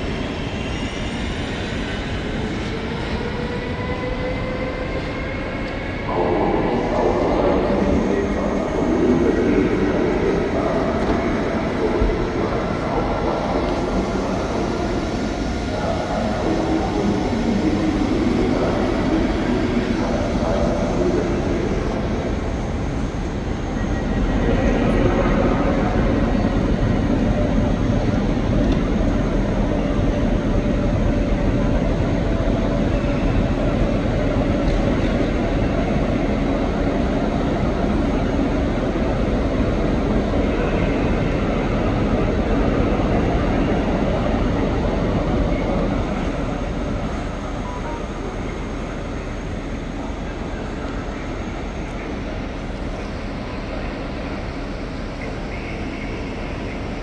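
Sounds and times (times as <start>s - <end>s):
rumble and hum of trains: 0.0s - 57.0s.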